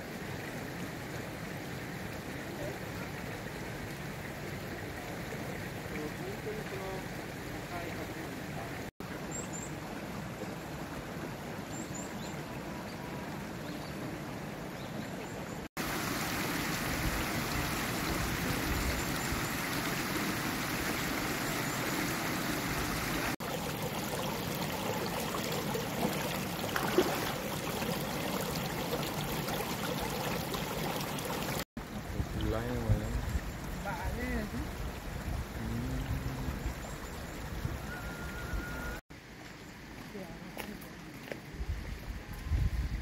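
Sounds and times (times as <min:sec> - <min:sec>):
stream running over rocks: 0:00.0 - 0:42.4.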